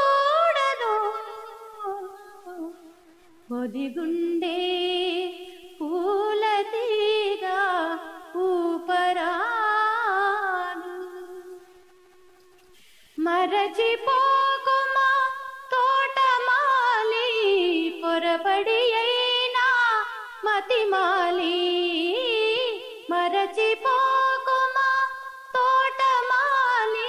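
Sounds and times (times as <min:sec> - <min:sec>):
woman singing unaccompanied: 0:00.0 - 0:12.3, 0:13.2 - 0:27.0
short breaths: 0:12.6 - 0:13.2.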